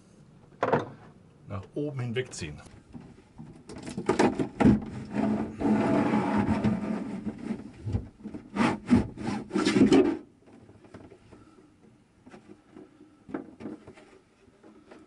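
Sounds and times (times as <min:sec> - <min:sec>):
panel scraping against walls: 0:03.9 - 0:10.2.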